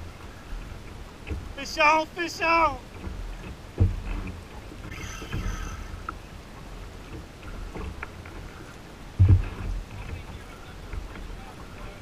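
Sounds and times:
water rumbling against hull: 0.0s - 12.0s
sharp knock on hull: 3.0s - 4.4s, 9.2s - 10.3s.

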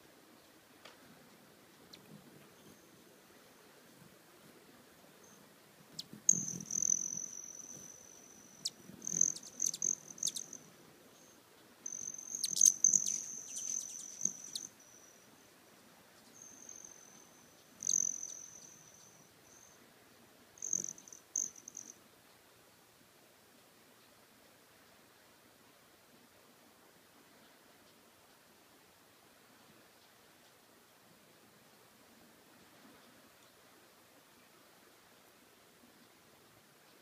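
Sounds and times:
hummingbird wing trill buzz: 6.0s - 10.6s, 11.2s - 15.2s, 16.4s - 19.7s, 20.6s - 22.0s.

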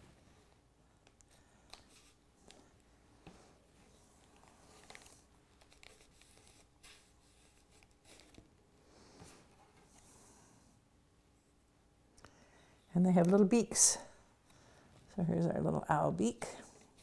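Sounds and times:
paper rustling: 3.9s - 8.5s.

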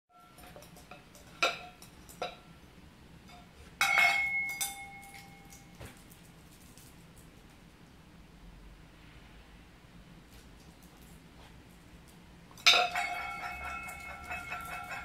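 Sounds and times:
metal bowl clanging: 0.1s - 2.5s, 3.3s - 5.7s, 12.5s - 15.0s
steel bowl clinking on floor: 0.1s - 2.5s, 3.3s - 5.8s, 12.5s - 15.0s.

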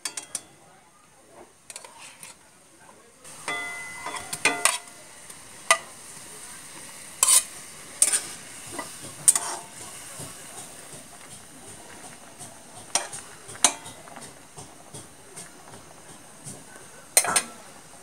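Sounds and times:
metal spoon clinking on bowl: 0.0s - 0.6s, 3.5s - 4.9s
hot pan hissing: 1.5s - 18.0s.

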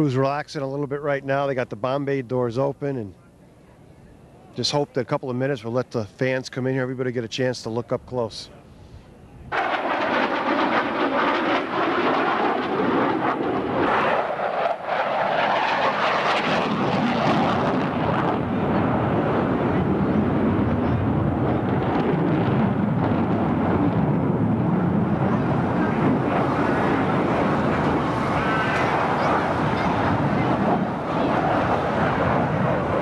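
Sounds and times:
fighter jet flying overhead: 9.5s - 33.0s.

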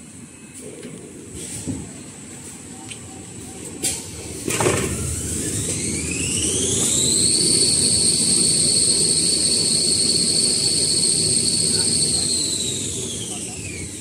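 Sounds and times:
machine whine: 2.8s - 14.0s.

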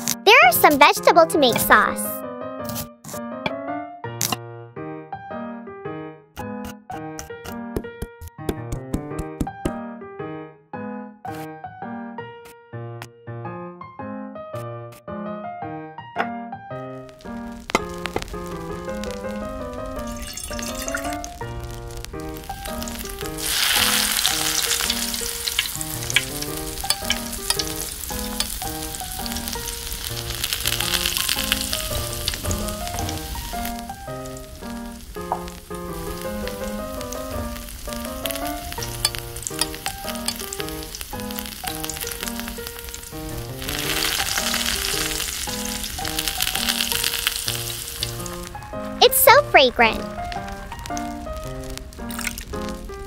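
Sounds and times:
food sizzling in hot oil: 17.0s - 53.0s.

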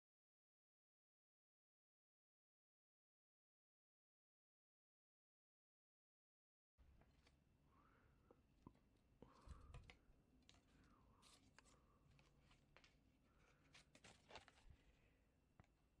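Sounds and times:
hands handling wire clicking: 8.6s - 14.9s.

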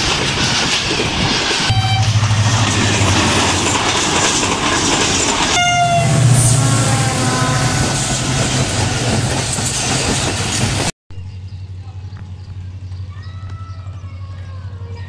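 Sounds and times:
train wheels clattering on rails: 0.0s - 6.7s, 7.8s - 10.9s
locomotive engine rumble: 0.4s - 15.0s
train horn blast: 1.7s - 2.8s, 5.5s - 8.4s.

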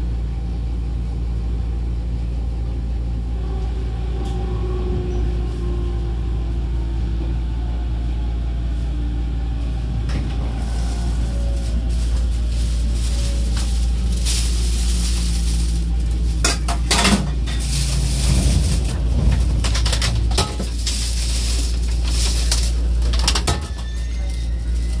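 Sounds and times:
inverter and motor hum: 0.0s - 25.0s
train braking rumble: 2.9s - 25.0s
sharp clanks and knocks: 16.4s - 21.0s.

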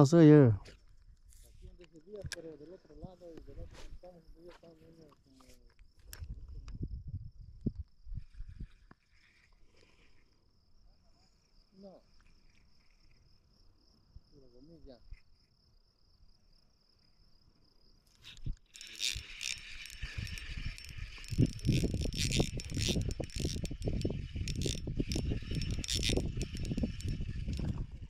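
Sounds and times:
high insect drone: 0.0s - 28.0s
fishing reel whirring: 18.1s - 28.0s.

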